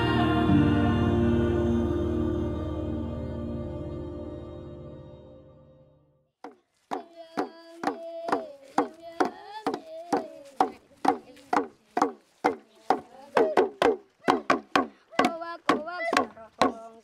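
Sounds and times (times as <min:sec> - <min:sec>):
soft ambient music: 0:00.0 - 0:06.0.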